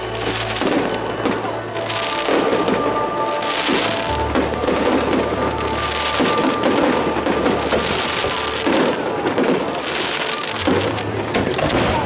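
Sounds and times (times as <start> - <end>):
fireworks crackling and popping: 0.0 - 12.0
music playing: 0.0 - 12.0.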